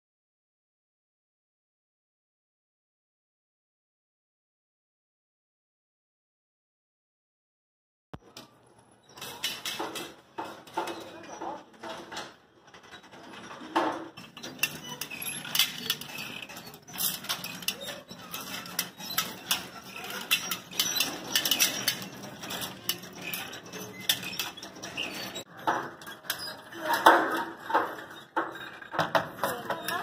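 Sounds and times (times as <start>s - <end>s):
metal parts clinking and clattering: 9.1s - 30.0s.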